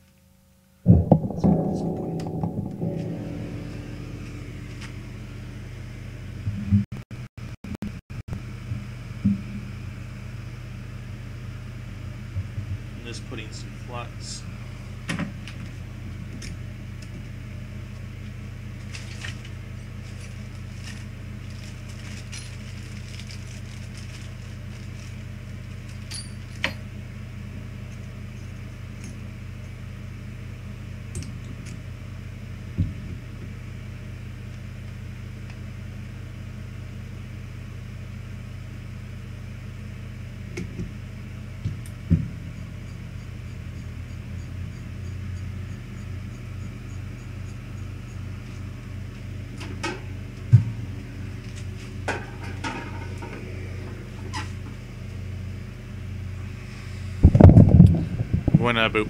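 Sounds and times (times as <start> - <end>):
low equipment hum: 0.8 - 6.8, 8.3 - 59.0
faint pulsing: 0.9 - 6.2.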